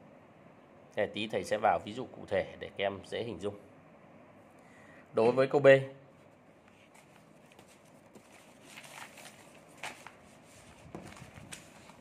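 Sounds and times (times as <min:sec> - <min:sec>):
paper rustling on desk: 0:06.6 - 0:12.0.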